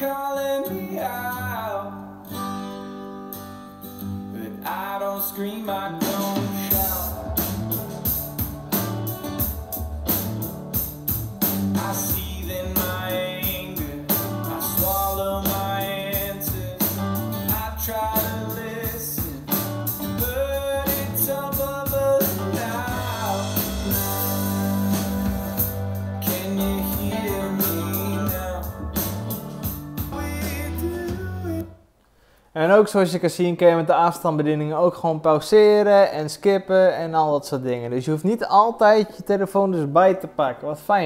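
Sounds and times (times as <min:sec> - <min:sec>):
rock song from a soundbar: 0:00.0 - 0:31.6.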